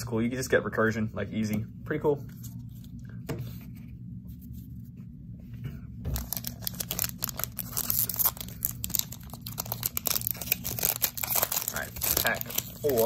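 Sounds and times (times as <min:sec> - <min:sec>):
foil wrapper crinkling and tearing: 0:06.1 - 0:13.0.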